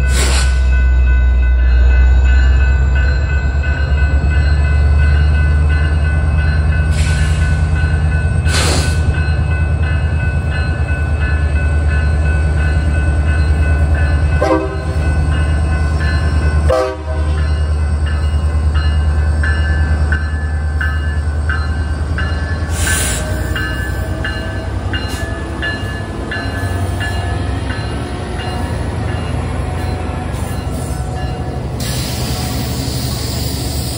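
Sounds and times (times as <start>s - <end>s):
crossing bell dinging: 0.0s - 33.4s
diesel locomotive engine rumbling: 0.0s - 33.9s
air hisses: 31.8s - 33.9s.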